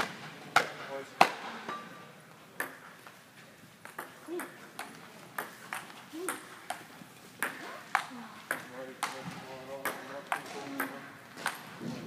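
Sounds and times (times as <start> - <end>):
ball bouncing on table: 3.8 - 11.8.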